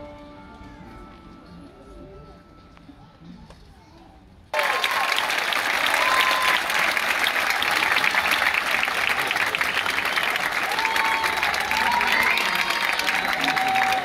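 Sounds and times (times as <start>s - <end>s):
large audience applauding: 4.5s - 14.0s.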